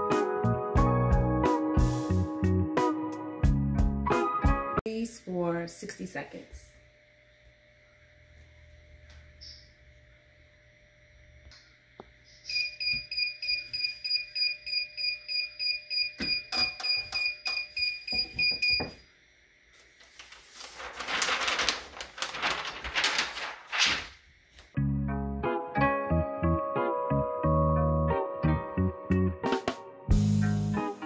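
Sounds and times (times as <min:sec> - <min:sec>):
timer alarm beeping rapidly: 0:12.5 - 0:19.0
towel and tissue paper rustling: 0:19.8 - 0:24.7.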